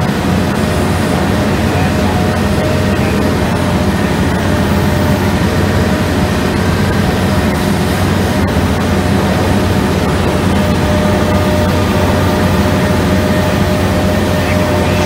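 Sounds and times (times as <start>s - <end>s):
drum cutter grinding rock: 0.0s - 15.0s
excavator engine deep hum: 0.0s - 15.0s.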